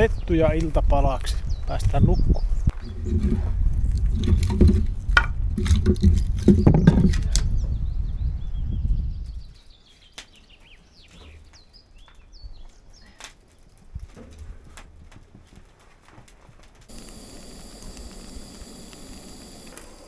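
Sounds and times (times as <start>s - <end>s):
small birds chirping: 0.0s - 3.4s, 6.0s - 14.2s
wood fire crackling: 9.2s - 20.0s.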